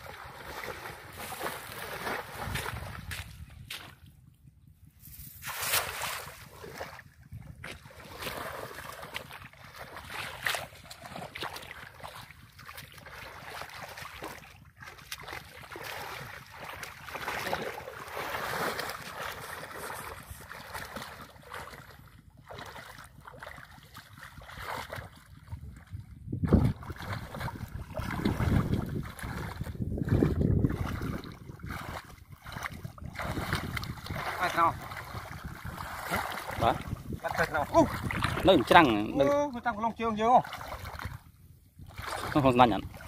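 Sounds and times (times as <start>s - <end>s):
wind rumbling on microphone: 0.0s - 9.7s, 21.9s - 39.6s, 40.5s - 43.0s
muddy water sloshing and splashing: 0.0s - 43.0s.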